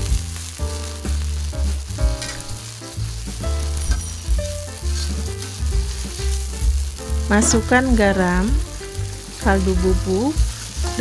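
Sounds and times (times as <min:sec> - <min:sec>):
background music: 0:00.0 - 0:11.0
food sizzling in a wok: 0:00.0 - 0:11.0
metal spatula scraping pan: 0:03.6 - 0:06.6.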